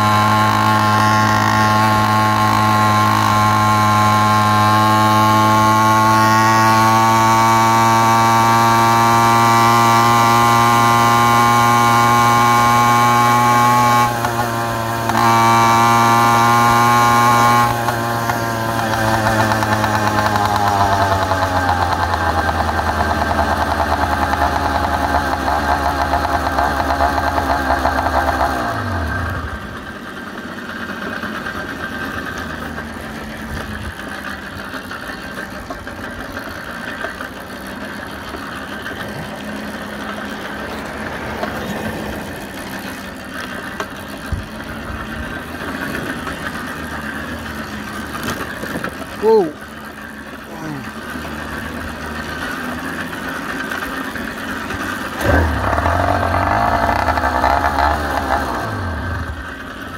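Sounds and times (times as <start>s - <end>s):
two-stroke engine running: 0.0s - 59.9s
wind and road rush: 38.8s - 46.5s.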